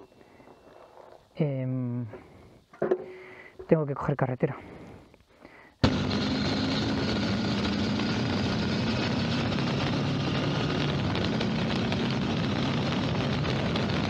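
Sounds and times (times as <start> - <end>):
motorcycle engine drone: 5.8 - 14.0
wind rushing over microphone: 5.8 - 14.0.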